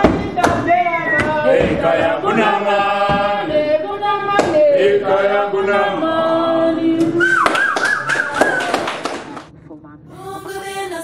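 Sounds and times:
group singing chant-like song: 0.0s - 8.6s.

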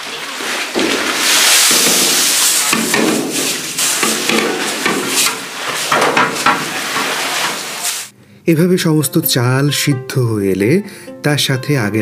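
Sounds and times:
steam hissing: 0.0s - 8.1s
people talking: 8.5s - 12.0s.

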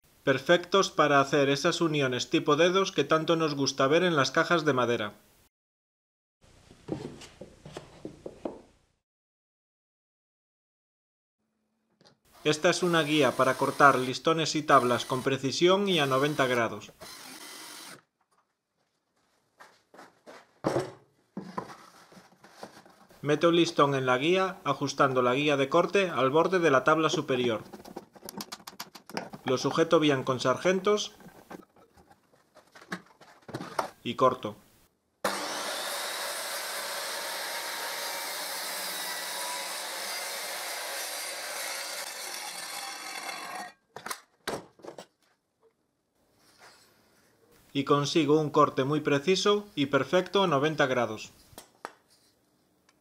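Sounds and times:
circular saw cutting wood: 12.4s - 15.4s, 16.0s - 18.0s, 35.2s - 43.8s
cordless drill boring into wood: 12.8s - 14.1s, 14.7s - 15.4s, 16.0s - 18.0s, 35.2s - 43.7s.

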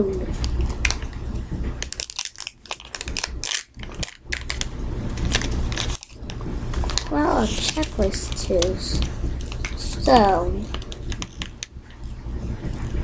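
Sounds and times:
foil packet crinkling: 1.8s - 9.8s.

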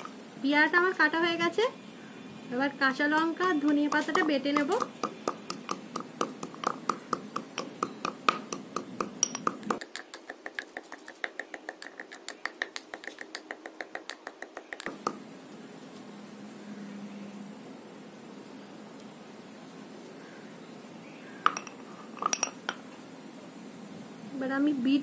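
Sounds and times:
pestle tapping in mortar: 3.2s - 15.2s.

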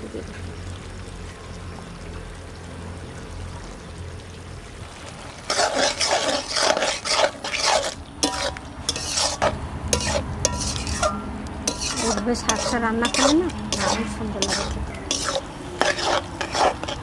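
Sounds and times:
metal spatula scraping pan: 5.5s - 17.0s.

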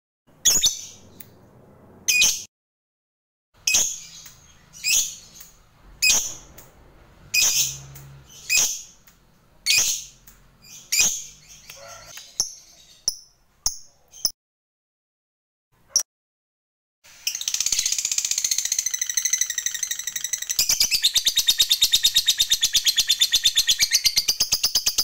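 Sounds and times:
lovebird high-pitched calls: 0.4s - 1.2s, 2.1s - 2.5s, 3.6s - 6.6s, 7.3s - 9.0s, 9.6s - 14.4s, 17.2s - 25.0s.

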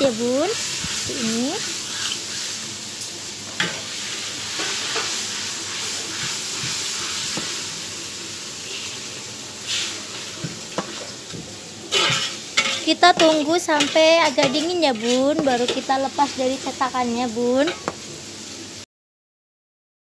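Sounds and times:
steady hiss: 0.0s - 14.0s.

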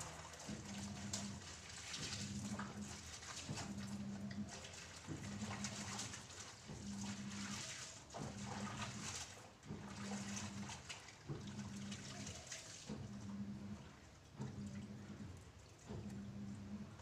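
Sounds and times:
clothes scrubbing and sloshing in water: 0.0s - 17.0s
short low hum: 13.0s - 15.4s, 16.0s - 17.0s.

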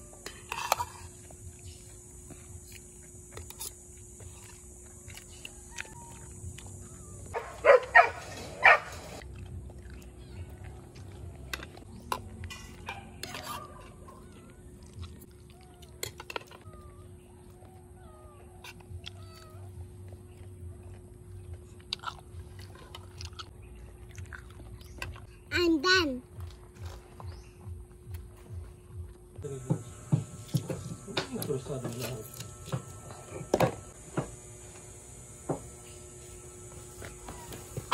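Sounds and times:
small chirps: 0.2s - 7.4s
dog barking: 7.3s - 9.1s.

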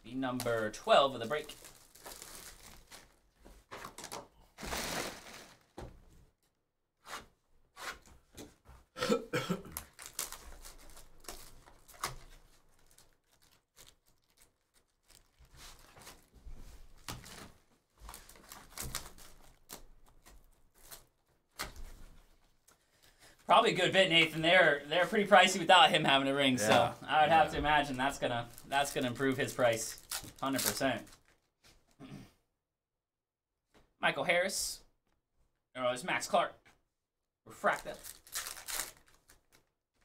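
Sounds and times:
plastic shrink-wrap crinkling: 0.4s - 5.8s, 9.7s - 21.6s, 27.6s - 31.5s, 37.7s - 39.7s.

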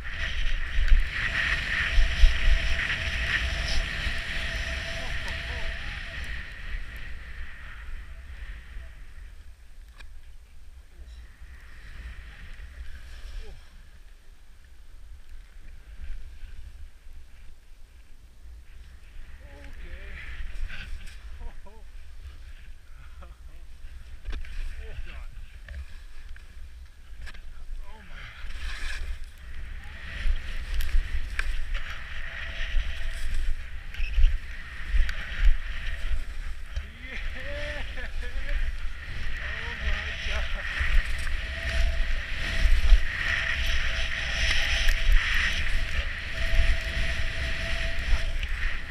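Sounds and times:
skis hissing over snow: 0.0s - 8.4s, 28.0s - 48.9s
wind rumble on microphone: 0.0s - 48.9s.

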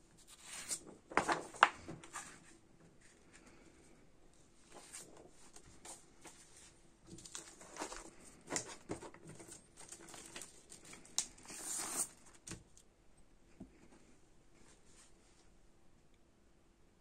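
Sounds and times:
paper rustling: 0.2s - 3.5s, 4.6s - 12.4s.

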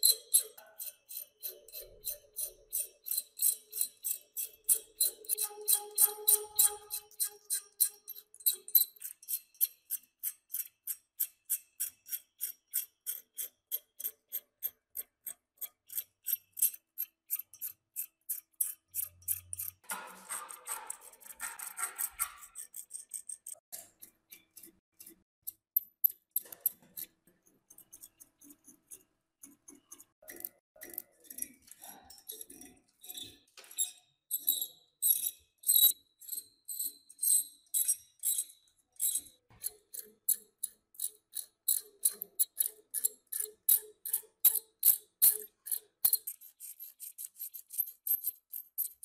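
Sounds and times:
hand tool scraping rusty metal: 0.0s - 9.7s, 17.6s - 25.2s.

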